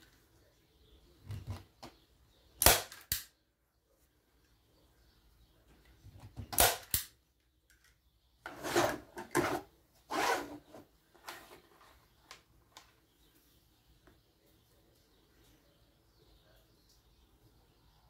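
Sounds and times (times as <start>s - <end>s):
staple gun snapping: 6.6s - 7.1s
wooden board scraping on plastic: 8.4s - 12.0s.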